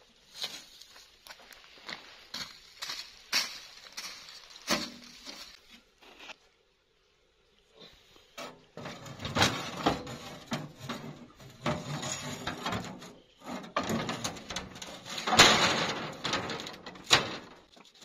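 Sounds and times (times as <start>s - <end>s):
metal knocks and clanks: 8.4s - 17.8s
sheet metal clattering and scraping: 8.4s - 18.0s.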